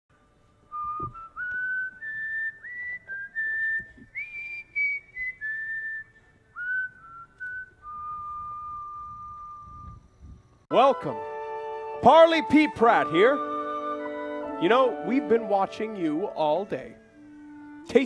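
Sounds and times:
person whistling a tune: 0:00.7 - 0:10.0.

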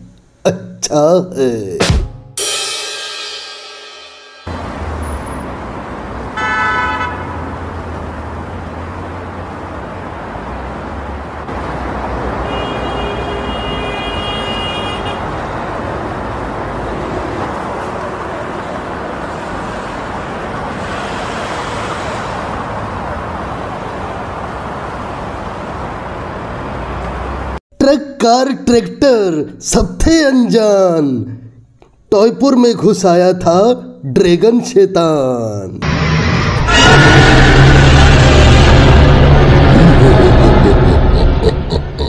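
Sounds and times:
traffic rumble: 0:04.5 - 0:27.6, 0:32.8 - 0:42.0
car horn honk: 0:06.4 - 0:07.4, 0:12.4 - 0:15.3
long high horn: 0:06.4 - 0:07.4, 0:12.4 - 0:15.3, 0:36.6 - 0:39.4.

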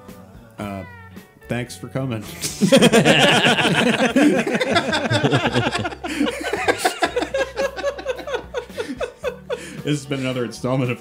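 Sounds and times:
people laughing: 0:02.4 - 0:10.4.

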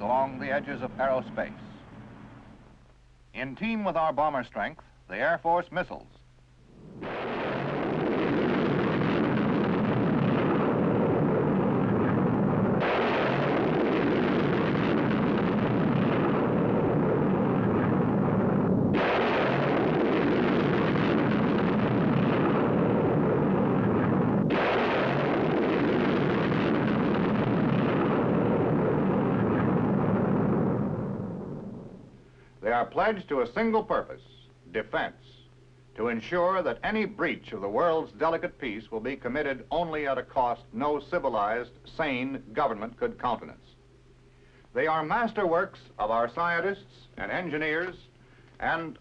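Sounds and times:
rocket engines roaring: 0:06.8 - 0:31.5.

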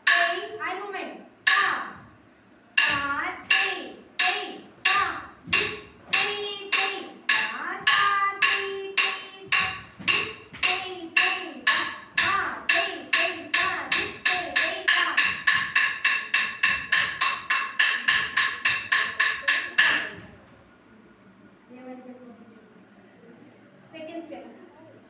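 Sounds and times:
sharp ringing beat strikes: 0:02.8 - 0:20.2.

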